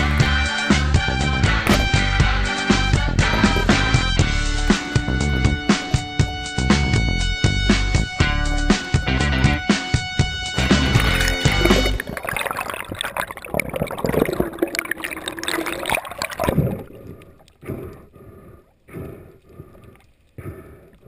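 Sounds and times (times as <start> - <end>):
background music: 0.0 - 12.2
water splashing and gurgling: 10.2 - 21.0.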